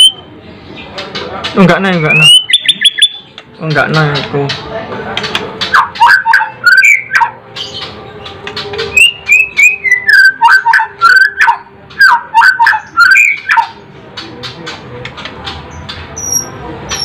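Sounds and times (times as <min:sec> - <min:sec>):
bird singing whistled phrases: 0:00.0 - 0:00.3, 0:02.0 - 0:03.2, 0:05.7 - 0:07.3, 0:08.9 - 0:13.7
bird sharp clicking notes: 0:01.1 - 0:04.6, 0:05.2 - 0:16.0.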